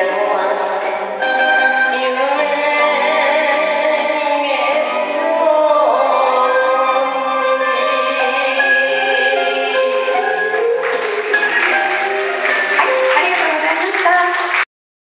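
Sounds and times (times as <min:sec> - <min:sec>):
backing music: 0:00.0 - 0:14.6
woman singing long held notes: 0:01.8 - 0:10.4.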